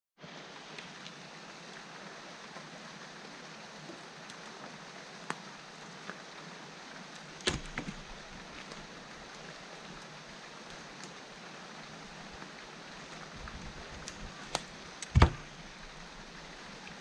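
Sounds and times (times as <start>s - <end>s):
steady hiss: 0.2s - 17.0s
wooden branches knocking: 7.4s - 8.9s, 13.5s - 16.0s.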